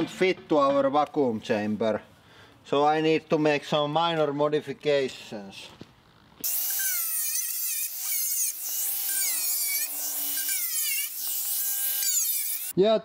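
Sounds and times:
angle grinder cutting metal: 6.4 - 12.7.

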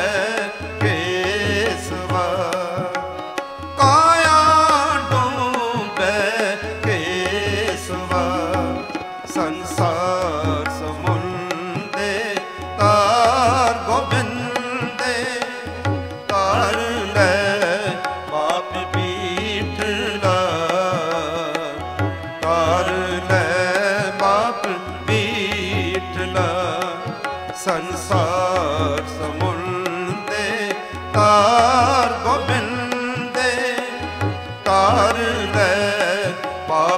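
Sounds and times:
tabla rhythm: 0.0 - 36.9
ornamented melody line: 6.8 - 11.7.

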